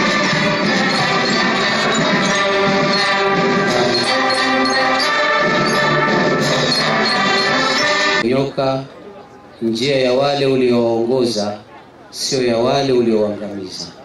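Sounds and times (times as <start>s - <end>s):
orchestral music with brass: 0.0s - 8.2s.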